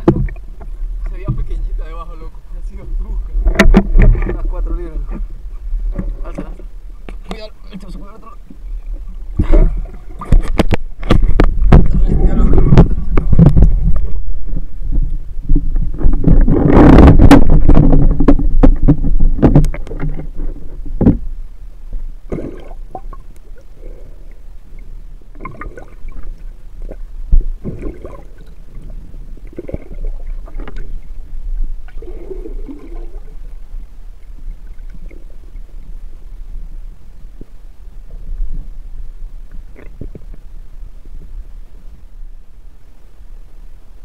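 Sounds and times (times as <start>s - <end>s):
underwater knocks: 0.0s - 1.6s, 3.3s - 5.3s, 9.4s - 21.3s
water splashing and rushing: 0.0s - 21.3s, 22.2s - 35.8s
muffled underwater sound: 0.0s - 44.0s
bubbly noises: 11.3s - 14.2s, 22.3s - 24.0s, 25.4s - 26.2s, 27.6s - 28.7s, 29.4s - 31.0s, 31.9s - 33.4s.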